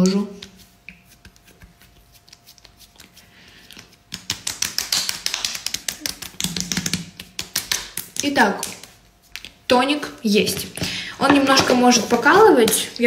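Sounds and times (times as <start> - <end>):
palms patting face: 0.0 - 9.7.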